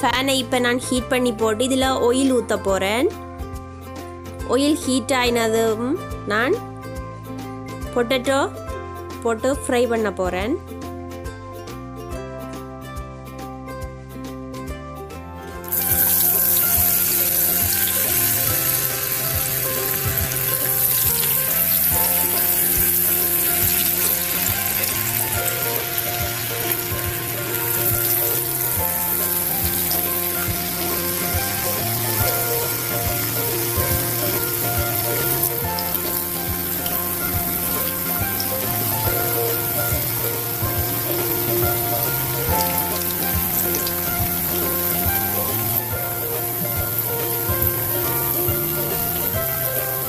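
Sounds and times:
background music: 0.0s - 50.0s
potatoes sizzling in oil: 15.6s - 50.0s.

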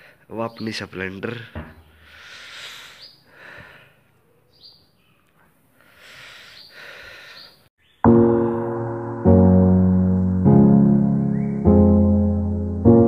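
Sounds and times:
breathing into a microphone: 1.9s - 4.1s, 5.8s - 7.6s.

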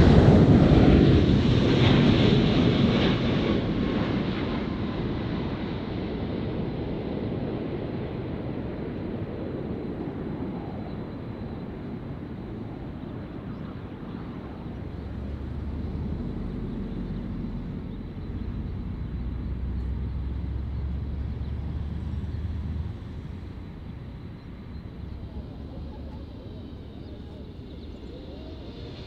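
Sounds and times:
jet engine rumble: 0.0s - 29.0s.

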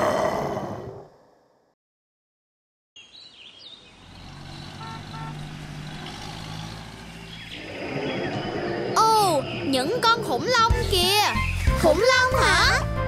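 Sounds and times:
bird chirps: 3.0s - 5.2s, 5.8s - 12.3s.

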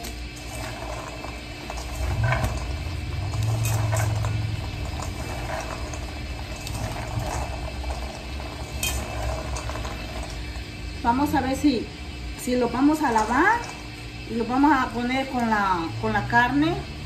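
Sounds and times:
beans rattling in a steel bowl: 0.0s - 11.8s, 12.4s - 16.2s
low rumble: 0.5s - 11.5s.

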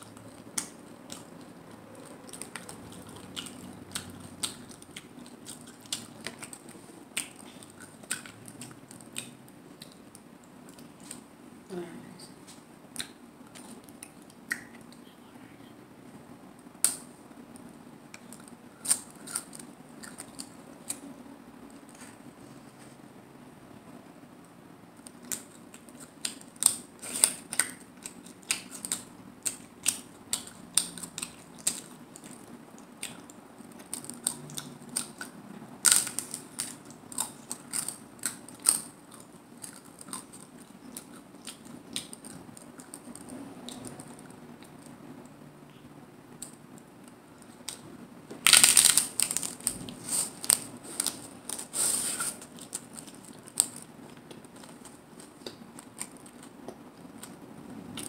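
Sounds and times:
taco shells crunching: 0.0s - 11.2s, 18.2s - 21.0s, 25.0s - 44.3s, 47.4s - 58.0s.

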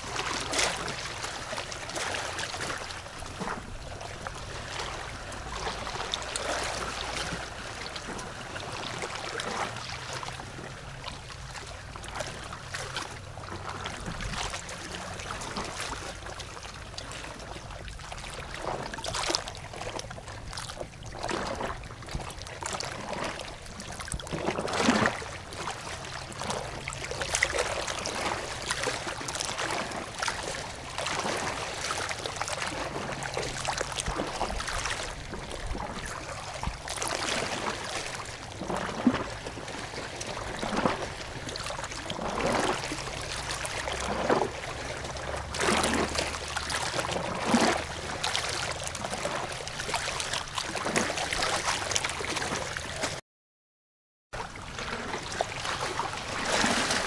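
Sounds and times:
water gurgling: 21.0s - 53.2s.

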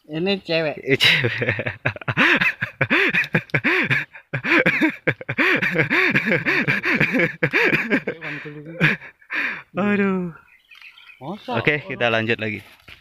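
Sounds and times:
man laughing heartily: 1.0s - 9.6s.

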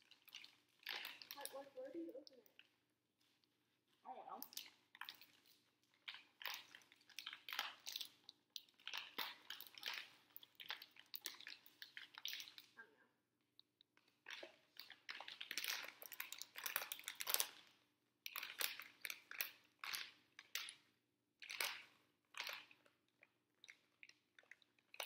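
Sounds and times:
candy packet crackling: 0.0s - 2.7s, 4.3s - 12.8s, 14.3s - 20.8s.

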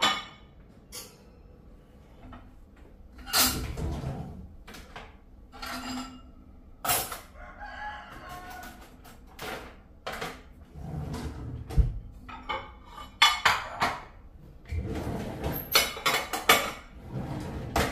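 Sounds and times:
utensils and dishes clattering: 0.0s - 1.4s, 3.1s - 7.4s, 12.2s - 17.9s.

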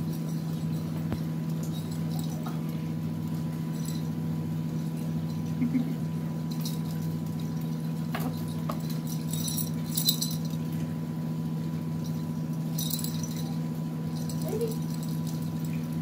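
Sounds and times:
cat toy jingling and rattling: 0.0s - 5.5s, 6.4s - 10.7s, 11.9s - 16.0s
steady low hum: 0.0s - 16.0s.

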